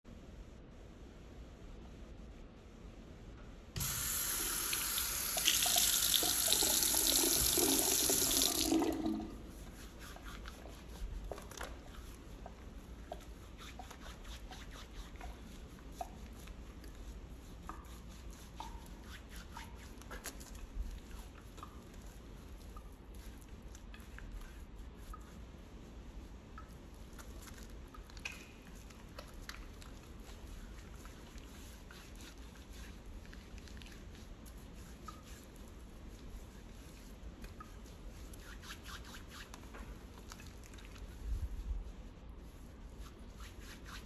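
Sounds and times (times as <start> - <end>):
faucet running into sink: 3.8 - 9.3
soapy hands rubbing: 3.8 - 44.0.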